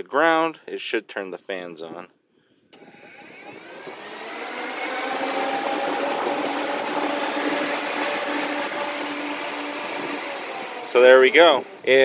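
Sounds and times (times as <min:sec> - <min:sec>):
cooling fans running: 0:02.8 - 0:12.0.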